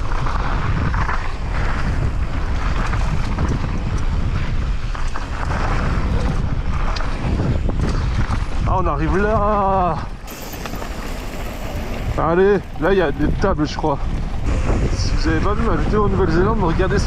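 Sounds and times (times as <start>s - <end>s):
wind rushing over microphone: 0.0s - 17.0s
low rumble: 9.9s - 17.0s.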